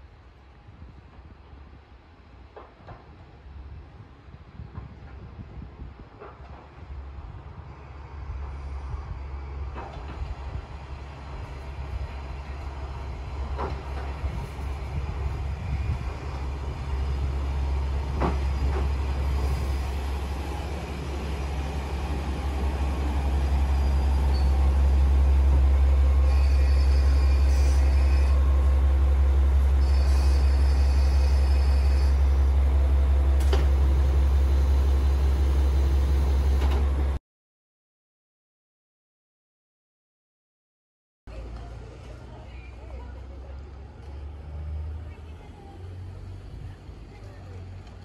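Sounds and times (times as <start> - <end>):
diesel railcar engine rumble: 0.0 - 37.2, 41.3 - 48.0
short high-pitched brake squeals: 23.8 - 24.6, 26.3 - 28.4, 29.8 - 32.4.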